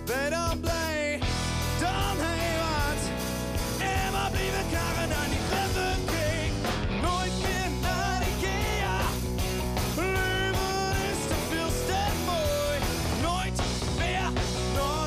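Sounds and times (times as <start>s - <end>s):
bass guitar: 0.0s - 15.0s
drums: 0.0s - 15.0s
electric guitar: 0.0s - 15.0s
man singing: 0.0s - 15.0s.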